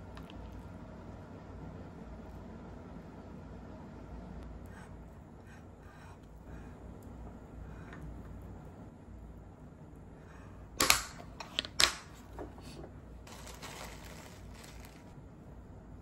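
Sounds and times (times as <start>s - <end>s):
plastic bag crinkling: 13.3s - 15.1s.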